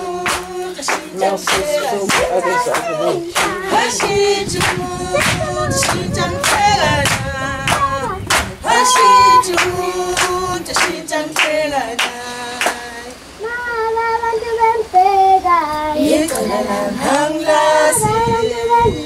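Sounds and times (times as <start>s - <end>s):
rhythmic hand claps: 0.0s - 13.1s
children's choir singing a cappella: 0.0s - 19.0s.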